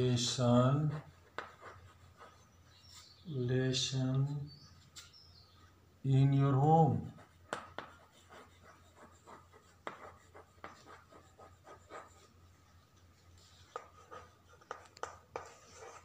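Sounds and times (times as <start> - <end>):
chalk scratching: 0.2 - 3.2, 7.1 - 16.0
chalk tapping on chalkboard: 1.3 - 2.3, 7.2 - 12.1, 13.6 - 16.0.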